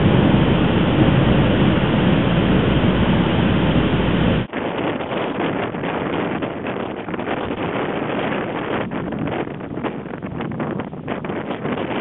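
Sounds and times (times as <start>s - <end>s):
waves breaking on shore: 0.0s - 4.5s
strong wind buffeting microphone: 0.0s - 12.0s.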